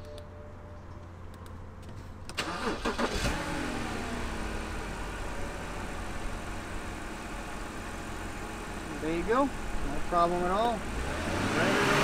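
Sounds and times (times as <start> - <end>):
car engine revving and idling: 2.6 - 12.0.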